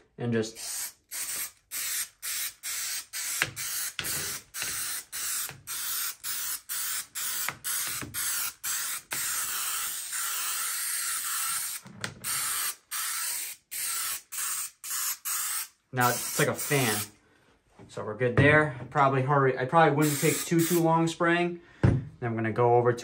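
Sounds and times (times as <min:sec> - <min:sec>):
aerosol spray can hissing: 0:00.5 - 0:17.1, 0:20.0 - 0:20.9.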